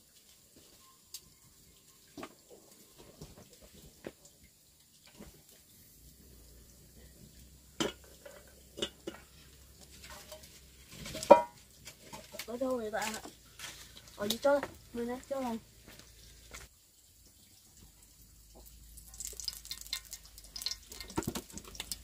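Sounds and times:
dishes and utensils clinking: 0:07.8 - 0:12.5.

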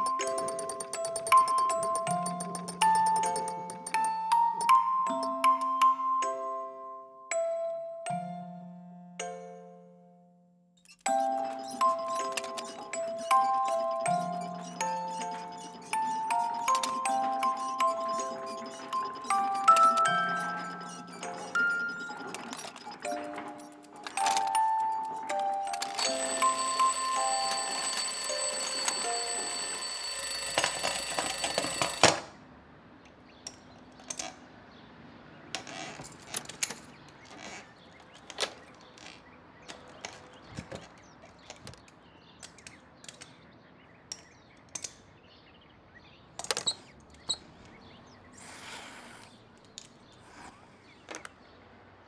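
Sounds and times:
alarm clock bell ringing: 0:00.0 - 0:06.0, 0:11.0 - 0:32.2
music box notes: 0:00.0 - 0:10.0, 0:10.9 - 0:32.2.

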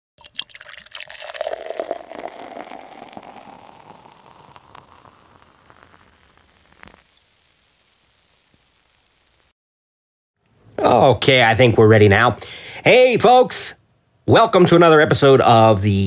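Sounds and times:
soda pouring into a glass: 0:00.2 - 0:09.2
soda fizzing with small pops: 0:00.2 - 0:09.5
ice cracking in glass: 0:00.3 - 0:07.1.

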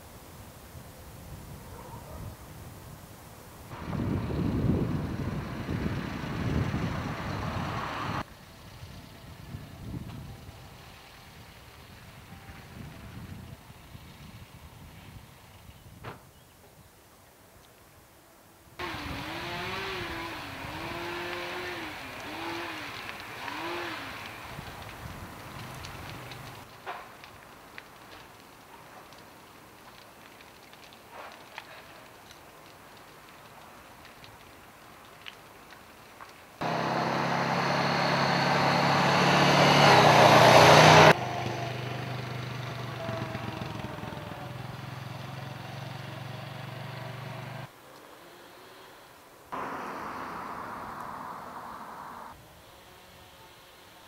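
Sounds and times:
engine revving: 0:05.4 - 0:08.2, 0:18.8 - 0:24.4, 0:36.6 - 0:47.7.

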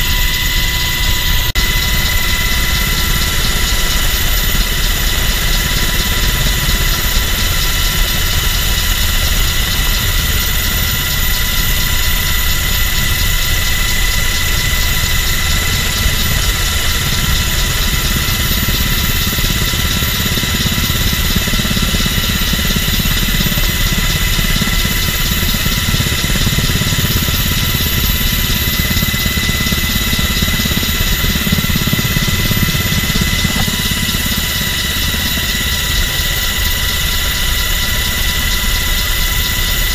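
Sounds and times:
helicopter cabin rumble: 0:00.0 - 0:39.9
turbine engines whining: 0:00.0 - 0:39.9.

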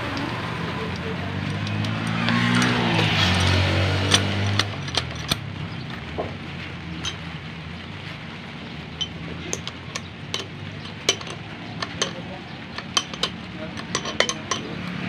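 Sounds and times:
metallic clinks of tools and parts: 0:00.1 - 0:05.5, 0:07.0 - 0:07.3, 0:09.0 - 0:15.0.

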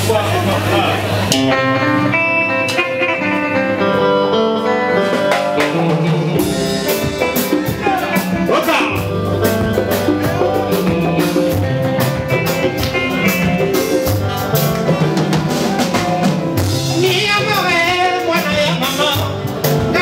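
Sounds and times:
rumba band playing: 0:00.0 - 0:20.0
congas: 0:04.8 - 0:20.0
man singing: 0:16.8 - 0:20.0.

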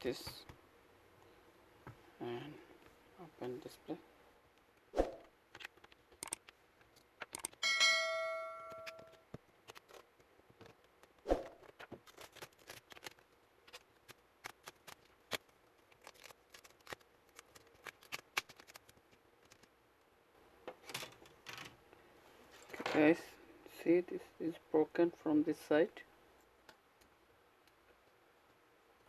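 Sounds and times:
metal ringing: 0:07.6 - 0:09.2.

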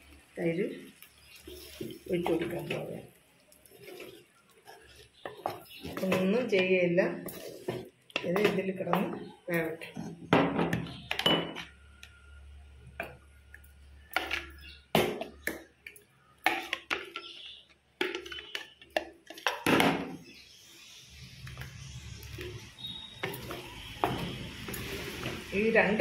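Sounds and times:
utensils clinking on pots and dishes: 0:09.8 - 0:11.8, 0:15.2 - 0:20.0.

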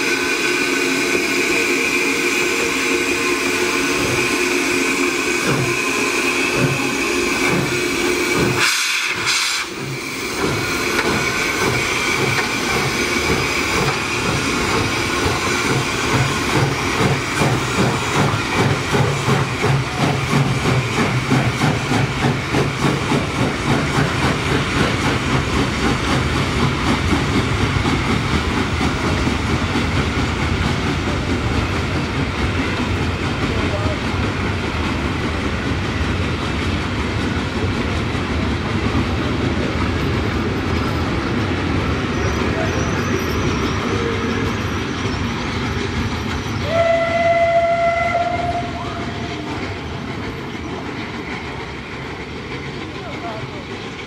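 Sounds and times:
rhythmic locomotive beat: 0:00.0 - 0:42.1, 0:43.3 - 0:54.0
steam locomotive hissing: 0:00.0 - 0:54.0
train pulling away: 0:00.0 - 0:54.0.

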